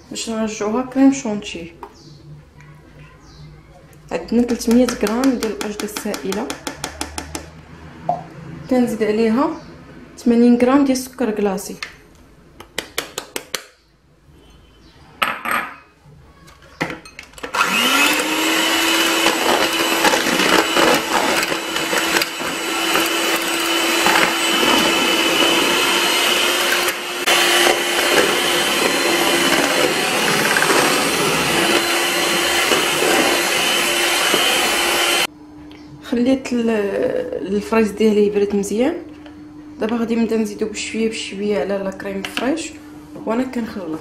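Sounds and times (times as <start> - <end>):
electric hand mixer whirring: 17.4 - 35.3.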